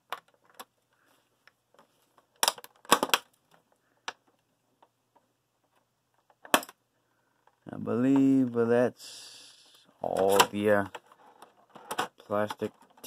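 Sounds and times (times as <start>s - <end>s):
plastic tray crackling and clicking: 1.7s - 6.8s.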